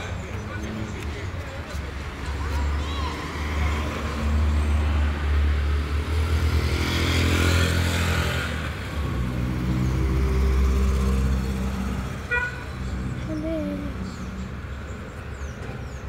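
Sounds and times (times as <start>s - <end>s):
vehicle passing by: 1.8s - 14.6s.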